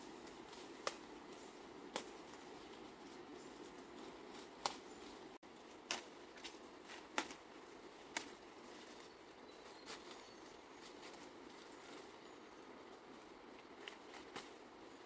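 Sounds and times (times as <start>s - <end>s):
stalks snapping and rustling: 0.2s - 7.5s, 8.1s - 9.1s, 13.6s - 14.6s.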